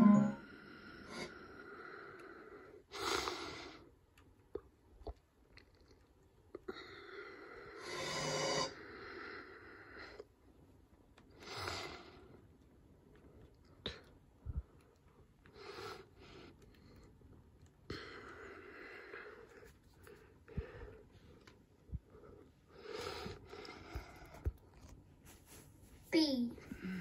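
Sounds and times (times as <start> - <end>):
faint breathing: 17.9 - 25.6, 26.6 - 27.0.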